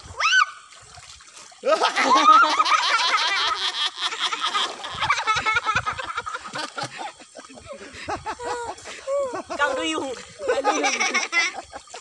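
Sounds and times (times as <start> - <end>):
water splashing around wading person: 0.0 - 12.0.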